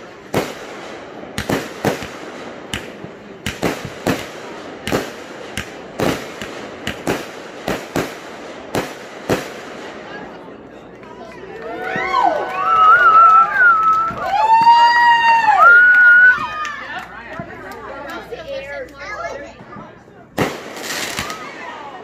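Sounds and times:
fireworks bangs: 0.0s - 11.0s, 19.5s - 22.0s.

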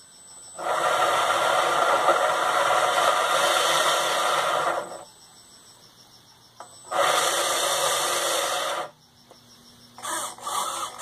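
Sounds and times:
motor whirring propeller: 0.6s - 5.1s, 6.9s - 8.9s, 10.0s - 11.0s.

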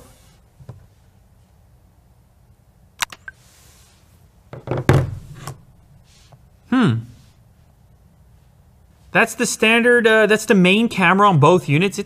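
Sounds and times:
knocks on tabletop: 4.5s - 5.2s.

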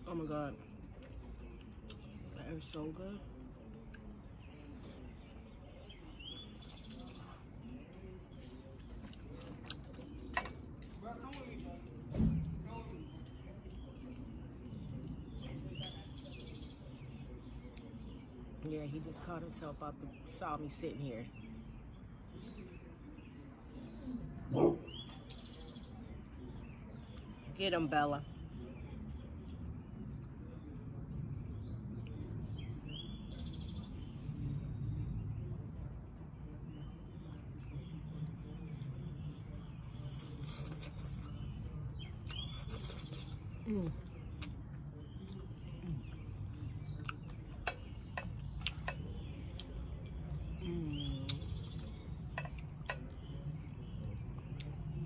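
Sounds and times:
small birds chirping: 0.0s - 55.0s
spaghetti eating sounds: 6.6s - 18.2s, 37.3s - 55.0s.

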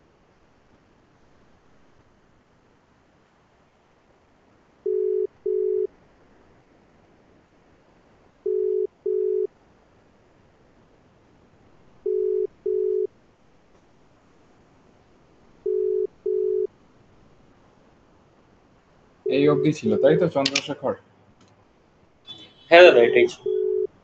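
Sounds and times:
telephone ringback beeps: 4.9s - 5.9s, 8.5s - 9.5s, 12.0s - 13.1s, 15.6s - 16.7s, 19.3s - 20.4s, 22.3s - 23.9s.

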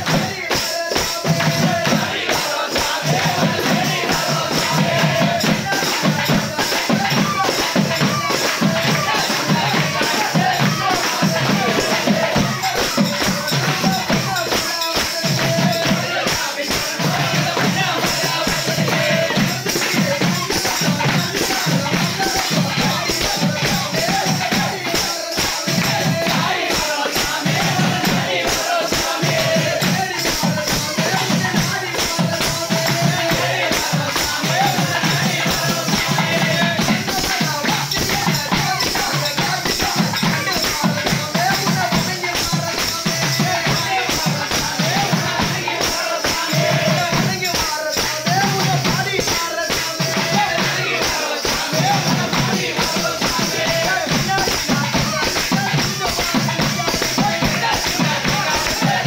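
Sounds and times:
hand-clapping: 0.0s - 59.0s
men singing together: 0.0s - 59.0s
tambourines jingling: 0.0s - 59.0s.

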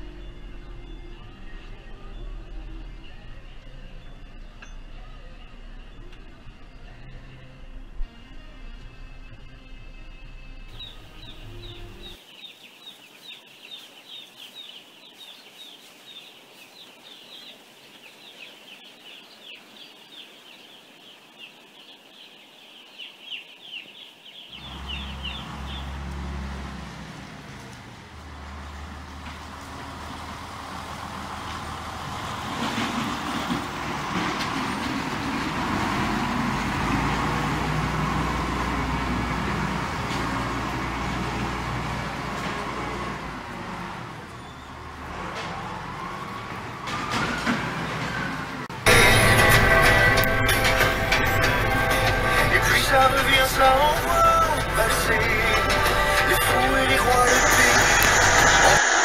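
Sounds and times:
tractor diesel engine running: 0.0s - 12.2s, 24.6s - 45.4s, 47.9s - 59.0s
chicks peeping: 10.7s - 26.0s.

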